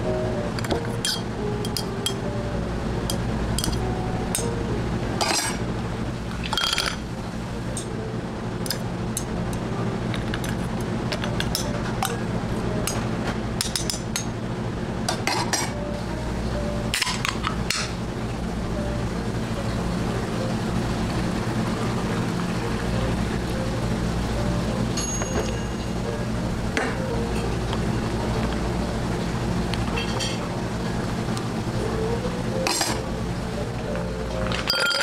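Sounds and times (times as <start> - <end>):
steady low hum: 0.0 - 35.0
utensil clinking against glass: 34.6 - 35.0.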